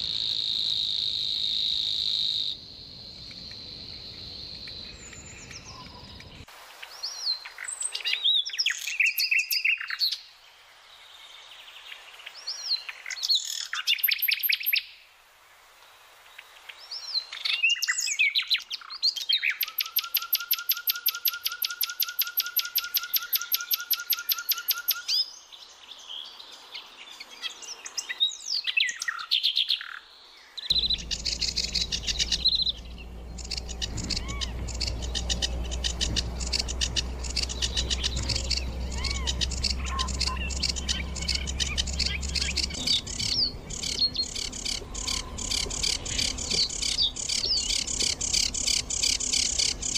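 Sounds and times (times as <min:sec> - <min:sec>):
nightingale singing: 0:00.0 - 0:10.3, 0:16.9 - 0:25.6, 0:27.4 - 0:49.9
low steady hum: 0:30.7 - 0:49.9.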